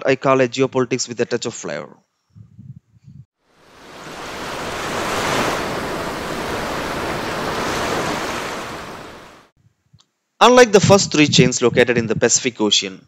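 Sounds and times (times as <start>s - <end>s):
rushing swell of noise: 3.6s - 9.5s.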